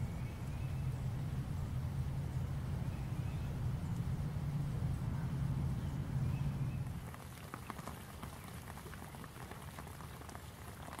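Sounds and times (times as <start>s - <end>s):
low rumble: 0.0s - 7.0s
rain pattering on leaves: 6.8s - 11.0s.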